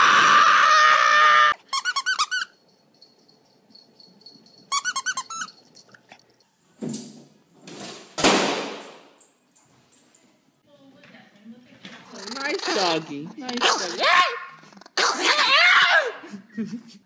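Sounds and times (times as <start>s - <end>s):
squeaky dog toy squeaking: 1.7s - 2.6s, 4.7s - 5.6s, 12.1s - 15.5s.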